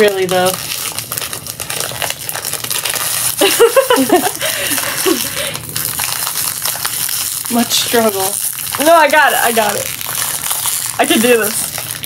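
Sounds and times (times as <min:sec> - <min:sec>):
plastic wrapper crinkling: 0:00.0 - 0:12.0
person's voice: 0:11.0 - 0:11.6.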